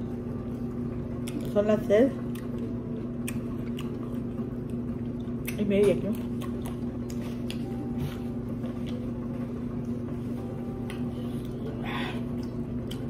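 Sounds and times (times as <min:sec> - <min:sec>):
appliance electrical hum: 0:00.0 - 0:13.0
chewing clicks: 0:02.3 - 0:07.6.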